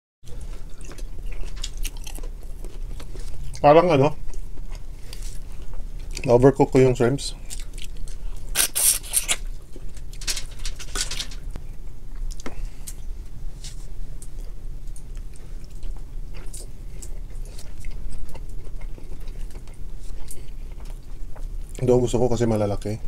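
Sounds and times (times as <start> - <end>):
people chewing and biting: 0.3 - 3.6, 4.2 - 6.4, 7.4 - 10.2, 10.9 - 21.9
shells crackling: 10.0 - 11.6.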